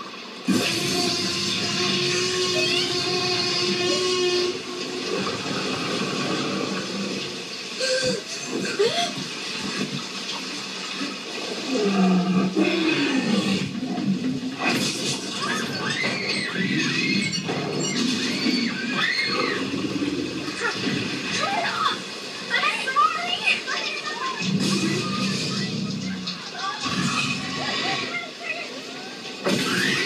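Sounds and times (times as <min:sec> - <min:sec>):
heavy rain: 0:00.0 - 0:30.0
dinosaur roaring: 0:11.7 - 0:14.9, 0:24.4 - 0:28.1.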